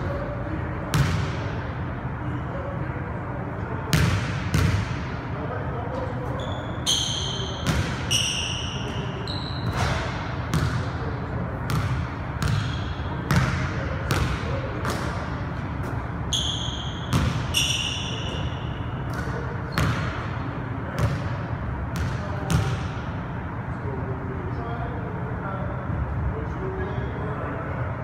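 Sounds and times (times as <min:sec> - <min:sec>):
sneakers squeaking on hardwood: 0:06.2 - 0:10.7, 0:15.8 - 0:20.2.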